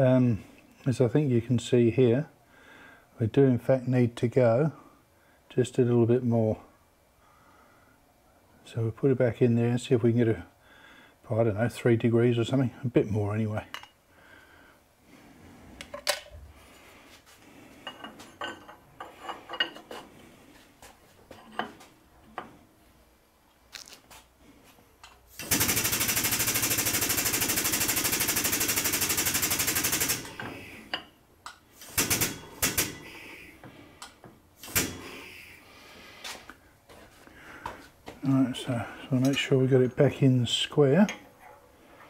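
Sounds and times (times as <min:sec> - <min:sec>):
metal clinks and knocks: 0:17.8 - 0:20.0.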